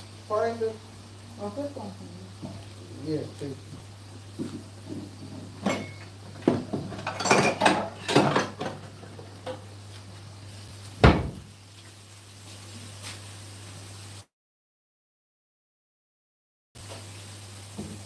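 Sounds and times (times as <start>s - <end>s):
plates and cutlery clattering: 4.4s - 9.6s.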